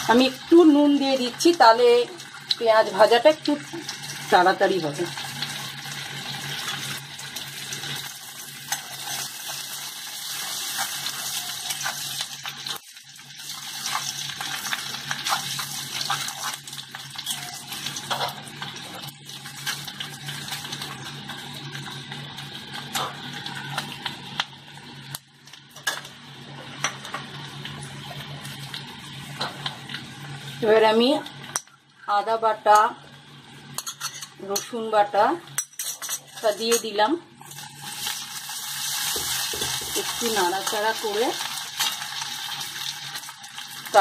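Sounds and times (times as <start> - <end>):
onions sizzling in oil: 0.0 - 35.7, 36.4 - 44.0
metal spatula scraping pan: 17.2 - 18.4.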